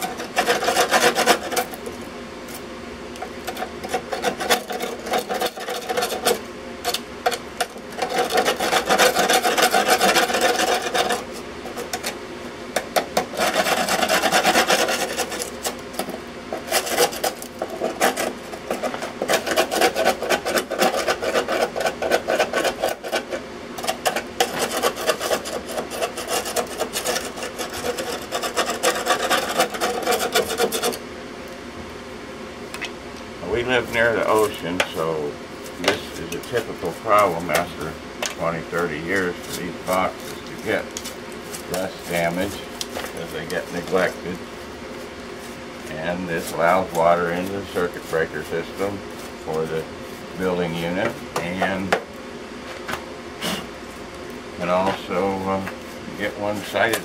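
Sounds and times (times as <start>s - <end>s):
hand tool scraping rust off metal: 0.0s - 1.8s, 3.4s - 12.2s, 12.8s - 31.0s, 35.8s - 37.8s, 38.4s - 44.4s, 45.9s - 49.8s.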